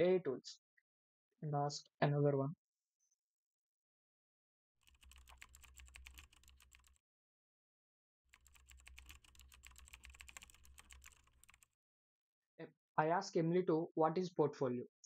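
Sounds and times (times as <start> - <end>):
typing on a computer keyboard: 4.8 - 7.0, 8.3 - 11.7.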